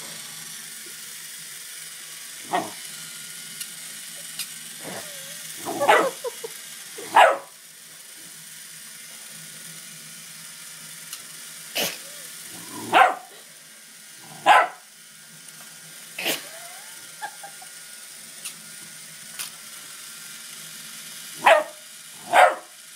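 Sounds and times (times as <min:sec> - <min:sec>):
puppy barking: 0:05.7 - 0:06.2, 0:07.1 - 0:07.5, 0:12.9 - 0:13.3, 0:14.4 - 0:14.8, 0:21.4 - 0:22.7.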